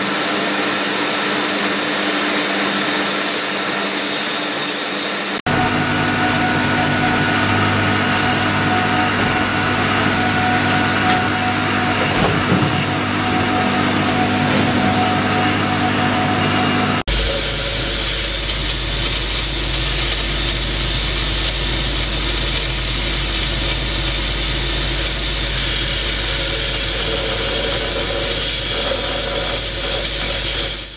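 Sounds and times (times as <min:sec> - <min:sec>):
rotary carving tool running: 0:02.3 - 0:30.9
circular saw motor humming: 0:02.7 - 0:30.9.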